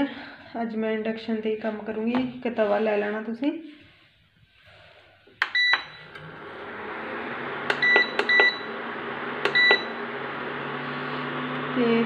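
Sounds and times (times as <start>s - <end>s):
cooktop whirring and humming: 5.4s - 12.0s.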